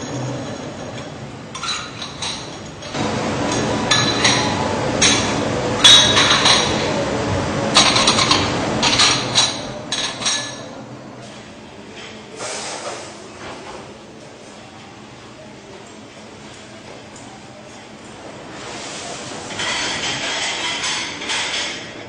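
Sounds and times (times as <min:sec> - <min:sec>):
steady machine noise: 0:00.0 - 0:12.4
porcelain plates clinking: 0:01.6 - 0:07.0, 0:07.7 - 0:10.8.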